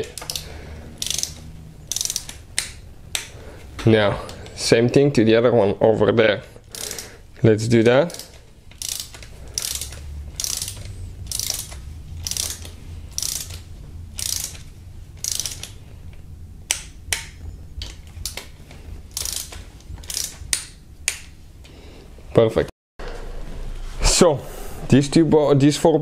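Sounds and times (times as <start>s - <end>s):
hand ratchet clicking: 0.0s - 3.4s, 6.6s - 7.2s, 7.8s - 21.4s.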